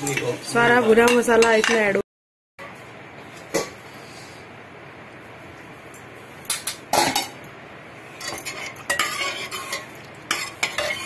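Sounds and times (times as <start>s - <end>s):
faint kitchen hiss: 2.6s - 11.0s.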